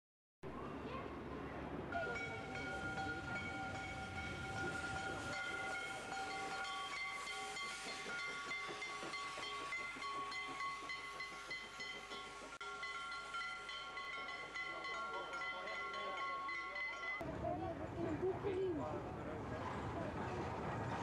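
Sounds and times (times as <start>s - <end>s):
steam hissing: 2.0s - 16.1s
steam locomotive whistles: 2.0s - 17.1s.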